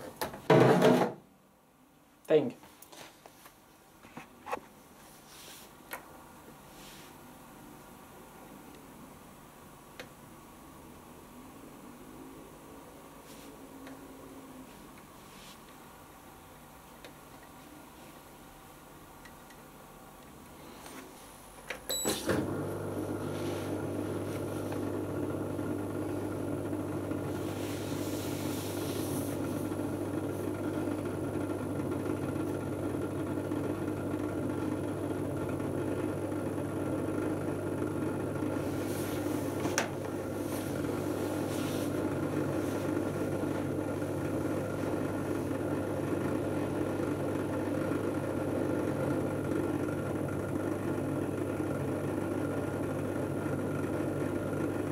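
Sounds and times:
dishwasher pump motor humming: 21.9 - 54.9.

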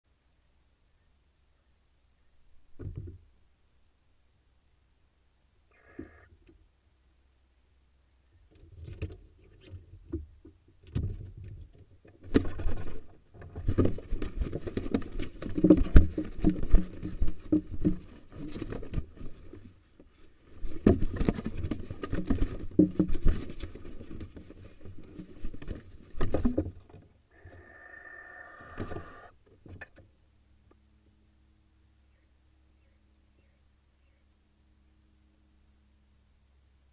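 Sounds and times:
birds scuffling in nest box: 12.2 - 27.8, 28.4 - 29.3
wings beating: 27.4 - 29.3.

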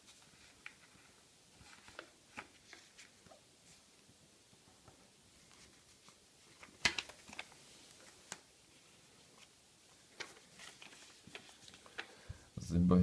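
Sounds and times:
faint paper rustling: 0.0 - 12.5
paper crackling and clicking: 0.2 - 3.1, 5.4 - 8.4, 10.1 - 12.2.

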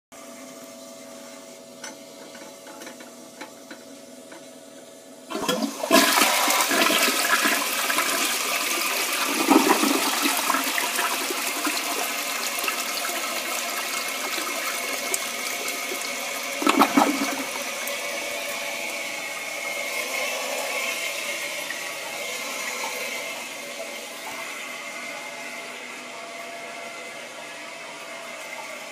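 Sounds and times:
toilet flush clunk: 5.3 - 17.7
toilet water rushing: 5.3 - 24.6.

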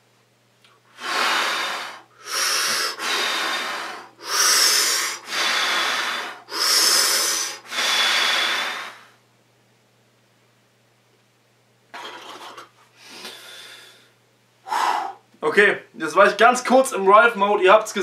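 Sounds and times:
man breathing hard through lips: 0.9 - 9.2, 13.0 - 15.3.

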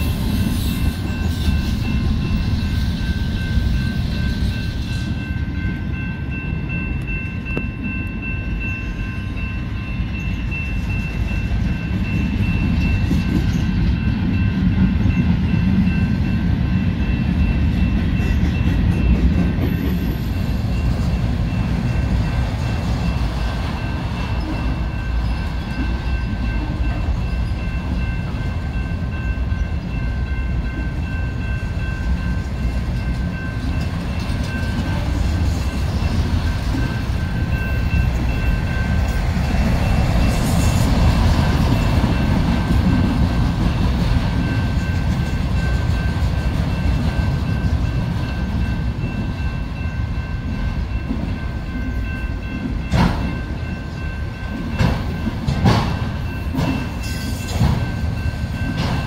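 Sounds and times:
high ringing tone: 0.0 - 43.0
train wheels rumbling on rail: 0.0 - 59.0.

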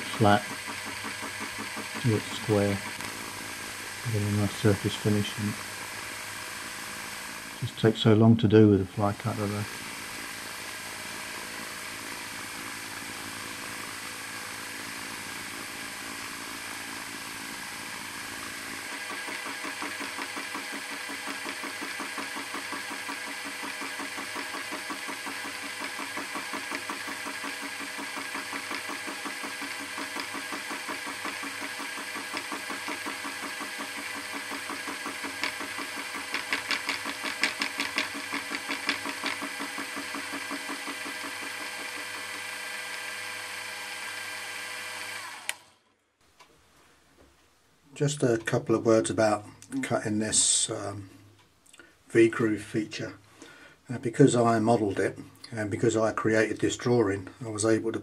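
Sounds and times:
milling machine cutting steel: 0.0 - 7.6, 17.6 - 45.6.

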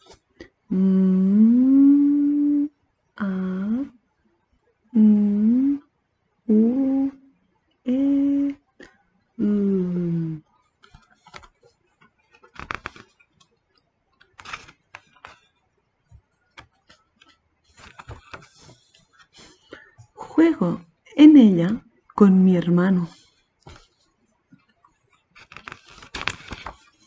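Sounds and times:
woman humming: 0.7 - 3.9, 5.0 - 5.9, 6.5 - 7.3, 7.9 - 8.6, 9.4 - 10.4
fingers tapping book pages: 10.8 - 13.5, 14.2 - 19.9, 24.6 - 27.0
page turning: 12.3 - 13.2, 14.2 - 15.6, 16.6 - 19.0, 25.4 - 27.0.

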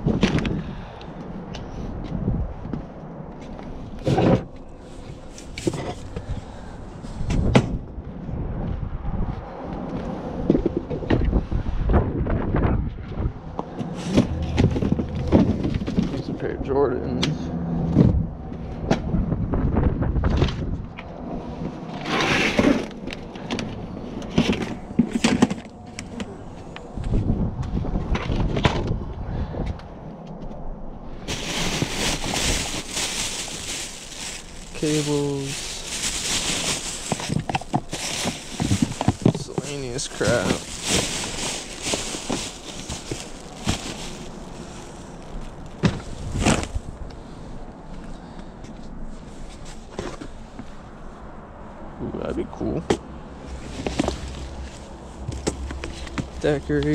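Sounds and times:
rustling through boxes: 4.0 - 6.4, 31.3 - 46.9
items knocking and clattering: 35.6 - 44.3.

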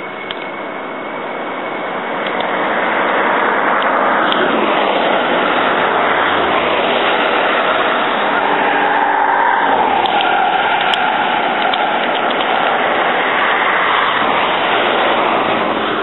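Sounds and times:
vehicle passing on road: 0.0 - 16.0.

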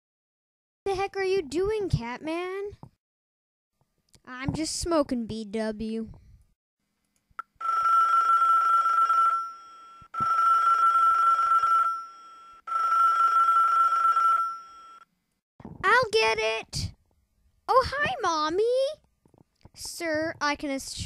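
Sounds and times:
telephone ringing: 7.6 - 15.1.

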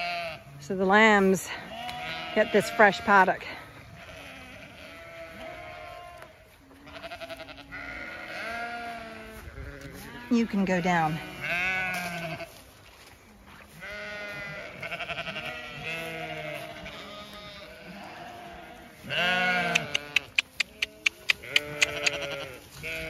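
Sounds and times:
sheep bleating: 0.0 - 0.6, 1.5 - 12.6, 13.7 - 23.0.

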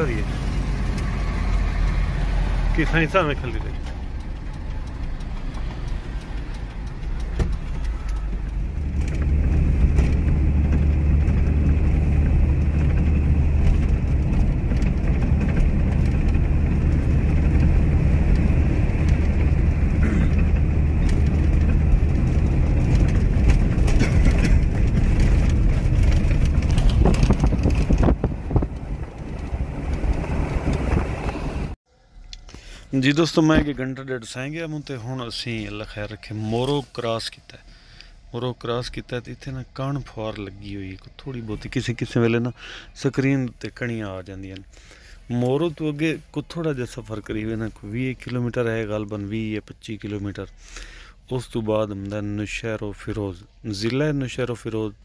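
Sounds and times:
truck diesel engine drone: 0.0 - 33.5
road noise: 0.0 - 55.0.

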